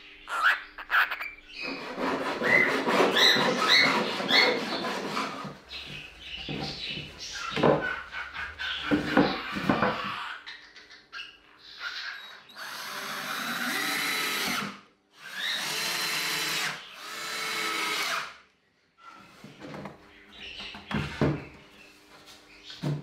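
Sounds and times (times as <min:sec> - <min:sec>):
cordless drill driving screws: 0:12.6 - 0:18.4.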